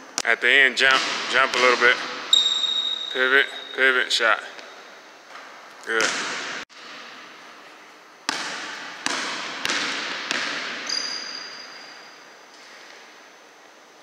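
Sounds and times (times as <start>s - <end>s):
basketball bouncing on gym floor: 0.9s - 3.0s, 6.0s - 7.3s, 8.3s - 11.9s.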